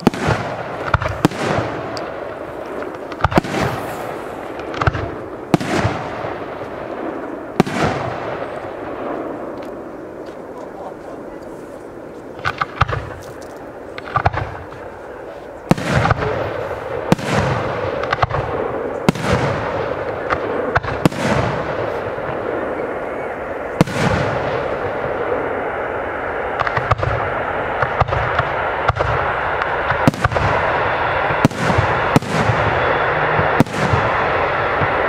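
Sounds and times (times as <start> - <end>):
steady hiss: 0.0 - 7.6
fireworks bangs with echo: 0.0 - 11.3, 12.3 - 13.2, 13.8 - 15.0, 15.6 - 35.0.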